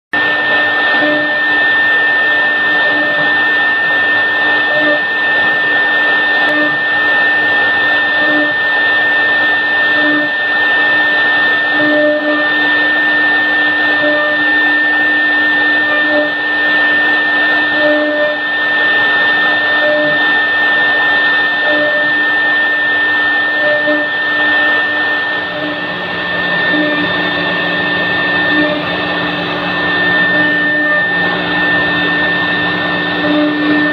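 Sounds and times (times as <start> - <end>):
router spindle whine: 0.1 - 33.9
low machine hum: 0.2 - 33.9.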